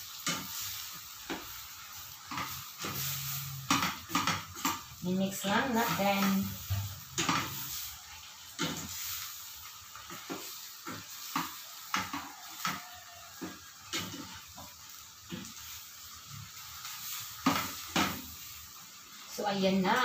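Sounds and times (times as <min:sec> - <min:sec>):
food sizzling: 0:00.0 - 0:20.0
spatula scraping metal pan: 0:02.3 - 0:09.4.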